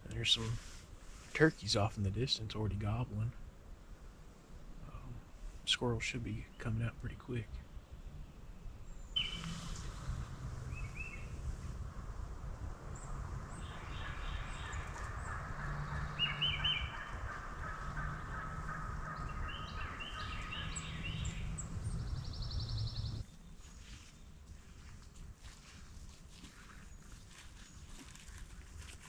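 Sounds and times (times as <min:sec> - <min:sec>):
songbirds chirping and trilling: 0:05.7 - 0:25.8
distant turkeys gobbling: 0:15.3 - 0:21.3.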